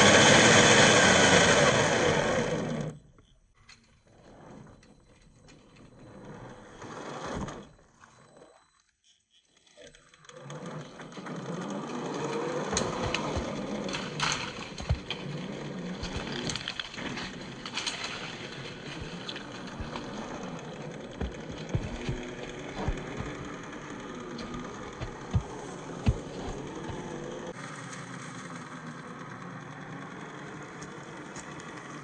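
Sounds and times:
electric motor whining: 0:00.0 - 0:03.1, 0:10.2 - 0:27.6.

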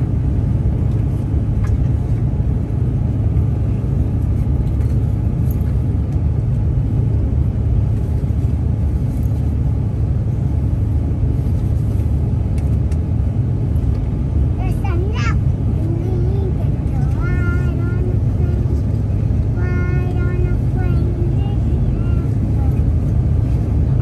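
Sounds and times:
airflow over fuselage: 0:00.0 - 0:24.0
jet engines at climb power: 0:00.0 - 0:24.0.

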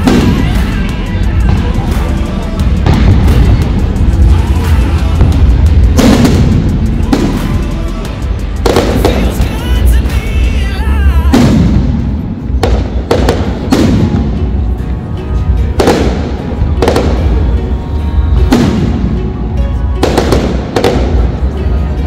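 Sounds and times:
low rumble: 0:01.2 - 0:09.5.

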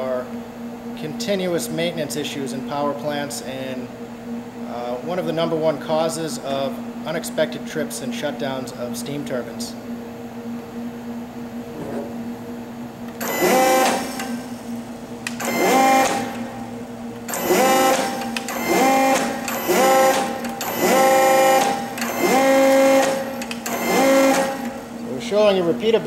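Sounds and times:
steady low hum: 0:00.0 - 0:26.0
actuator motor whining: 0:11.6 - 0:25.1.

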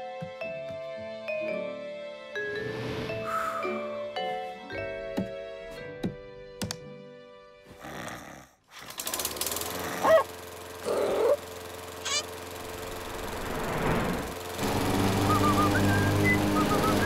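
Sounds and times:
cartoon lawn mower engine rattling: 0:08.7 - 0:17.0
squeaky vocal sounds: 0:12.0 - 0:12.3.

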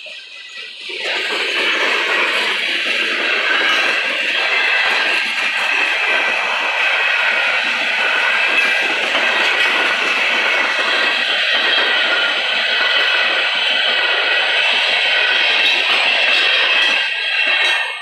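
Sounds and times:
freight train wheels rumbling on rails: 0:00.0 - 0:18.0.

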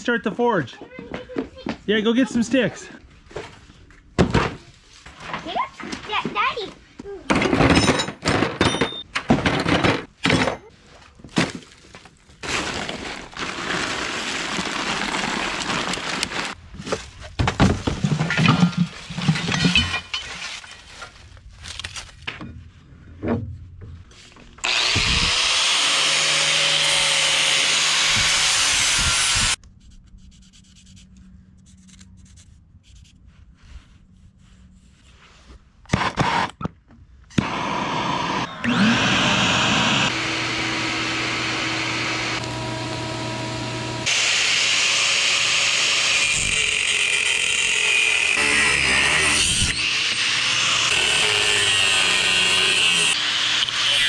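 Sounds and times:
angle grinder cutting steel: 0:24.6 - 0:29.6, 0:37.4 - 0:54.0.

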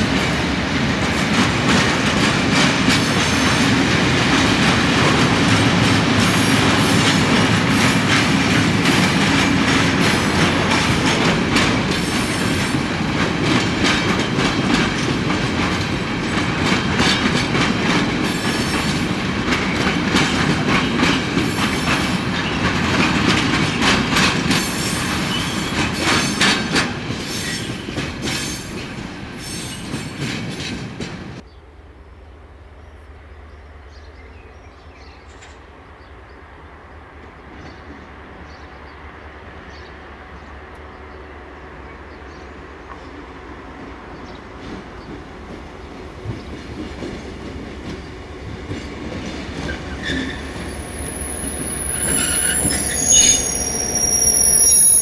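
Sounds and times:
train wheels clattering: 0:00.0 - 0:31.4, 0:42.9 - 0:55.0.

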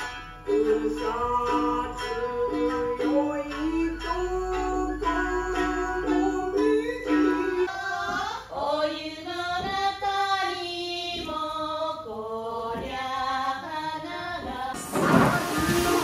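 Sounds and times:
plucked string instrument music: 0:00.0 - 0:07.7.

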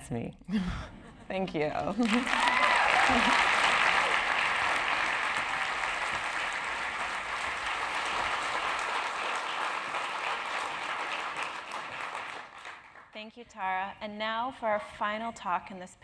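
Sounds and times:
audience applauding: 0:02.0 - 0:13.1.

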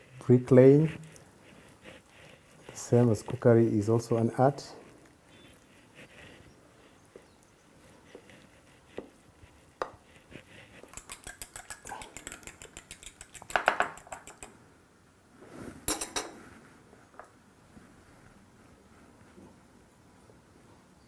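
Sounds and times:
fork clinking on glass bowl: 0:10.9 - 0:14.5, 0:15.9 - 0:16.4.

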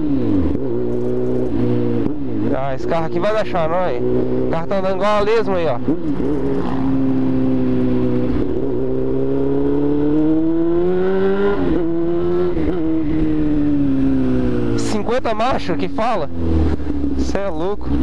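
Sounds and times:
motorcycle engine accelerating: 0:00.0 - 0:18.0.

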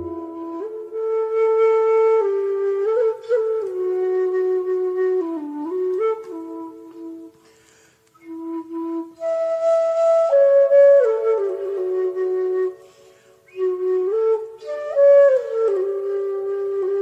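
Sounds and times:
slow solo flute melody: 0:00.0 - 0:17.0.

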